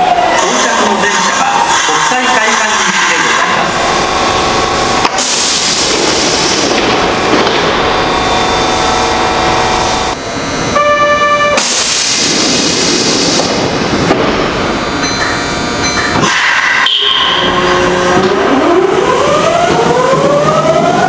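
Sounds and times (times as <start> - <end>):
electric train running past: 0.0 - 21.0
train horn blast: 0.4 - 1.6, 10.7 - 11.7, 16.3 - 18.6.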